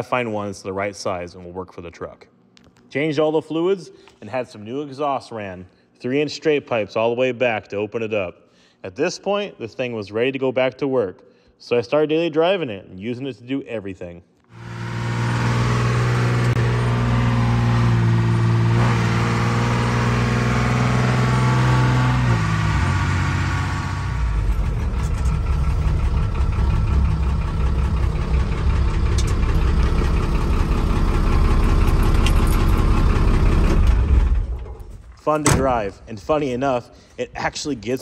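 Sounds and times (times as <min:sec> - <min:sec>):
diesel truck engine droning: 0:14.6 - 0:34.7.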